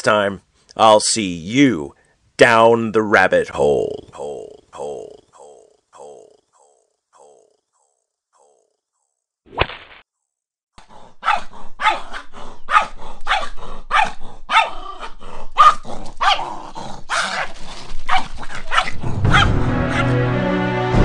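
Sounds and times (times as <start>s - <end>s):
small dog barking: 11.2s - 16.5s, 17.1s - 17.5s, 18.1s - 20.1s.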